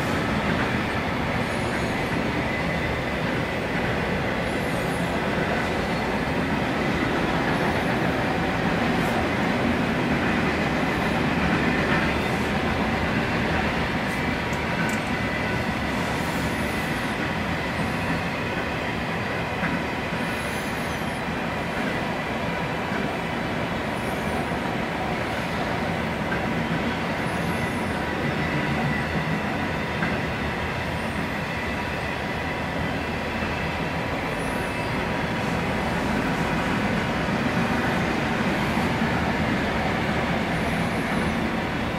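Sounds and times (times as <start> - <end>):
freight train wheels rumbling: 0.0 - 41.9.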